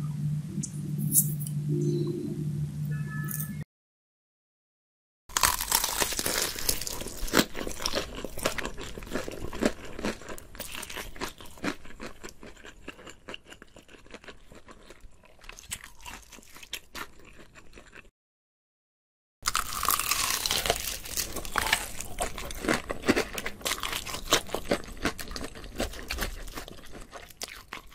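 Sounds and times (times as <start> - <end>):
person chewing crunchy food: 5.3 - 18.1, 19.4 - 27.9.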